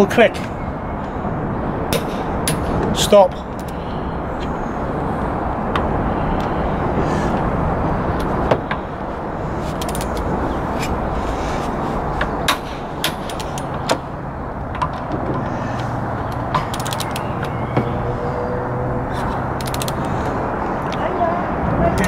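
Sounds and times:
traffic noise: 0:00.0 - 0:22.0
torque wrench clicking: 0:16.3 - 0:17.6, 0:19.5 - 0:20.1.

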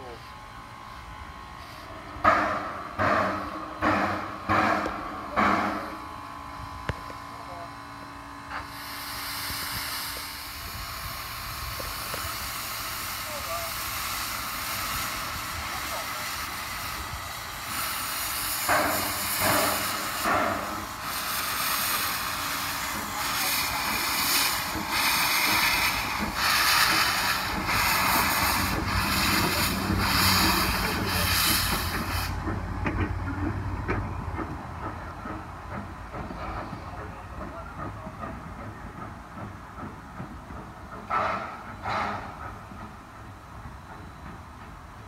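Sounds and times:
steam locomotive hissing: 0:00.0 - 0:45.0
wheels rumbling and clicking on rails: 0:00.0 - 0:45.0.

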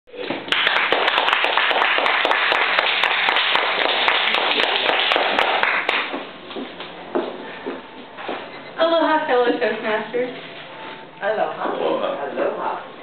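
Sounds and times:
audience clapping: 0:00.2 - 0:06.3.

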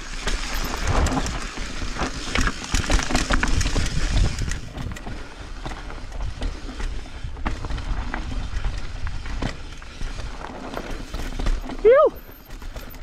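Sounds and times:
bike rattling over bumps: 0:00.0 - 0:13.0
tyres rumbling over dirt: 0:00.0 - 0:13.0.

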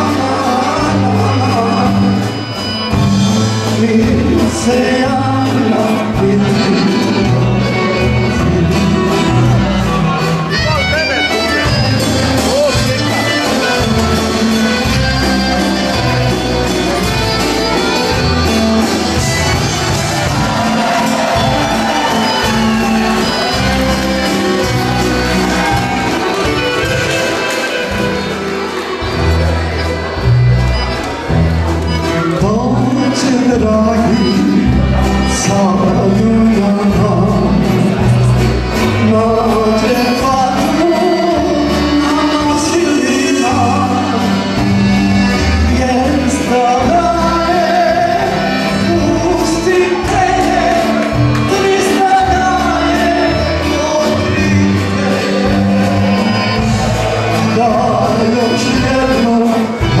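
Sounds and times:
man singing into a microphone: 0:00.0 - 0:17.1, 0:32.2 - 1:00.0
accordions: 0:00.0 - 1:00.0
acoustic guitars: 0:00.0 - 1:00.0
drums: 0:00.0 - 1:00.0.

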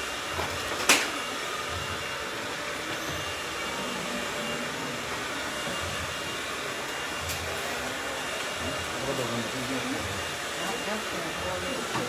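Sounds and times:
hair dryer running: 0:00.0 - 0:12.0
people talking indistinctly: 0:07.7 - 0:12.0.

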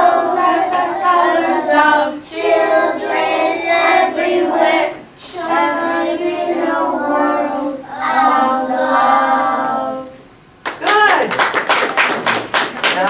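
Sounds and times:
children singing in unison: 0:00.0 - 0:10.2.

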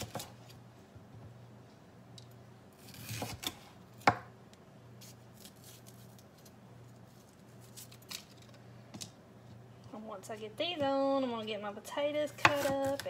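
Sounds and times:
knife slicing pepper: 0:02.8 - 0:04.3, 0:12.4 - 0:13.0.

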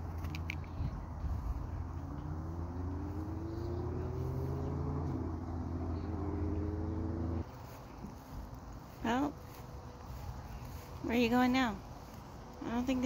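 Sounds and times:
vehicle engine speeding up: 0:00.0 - 0:09.2
steady low rumble: 0:00.0 - 0:13.0.

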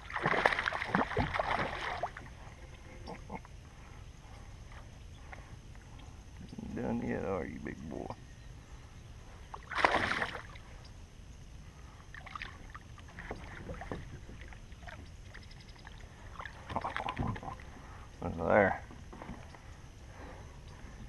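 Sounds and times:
fish splashing in water: 0:00.0 - 0:02.2, 0:09.6 - 0:10.6.

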